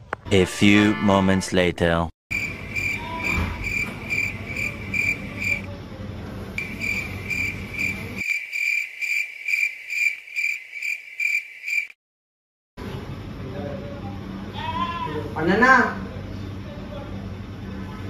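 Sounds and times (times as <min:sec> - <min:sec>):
cricket chirping: 0:02.3 - 0:05.7, 0:06.6 - 0:12.0.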